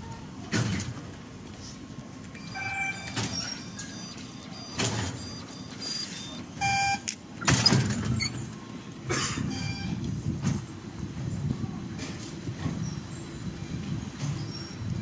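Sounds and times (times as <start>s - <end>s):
short electronic beeps: 2.4s - 7.2s
gate doors thudding: 2.6s - 5.8s, 7.4s - 8.5s.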